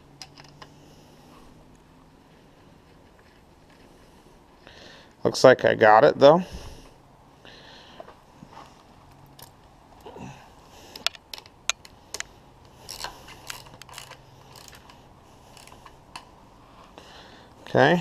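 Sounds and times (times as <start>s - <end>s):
ratchet wrench clicking: 11.0s - 15.9s.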